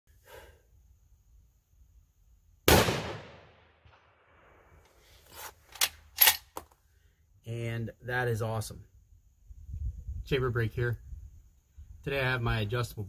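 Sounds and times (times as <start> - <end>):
rifle shot with echo: 2.7 - 4.8.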